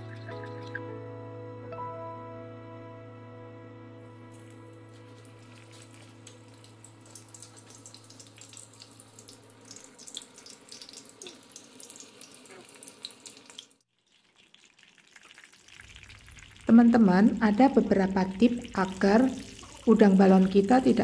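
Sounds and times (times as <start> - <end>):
shrimp deep-frying in oil: 5.4 - 21.0.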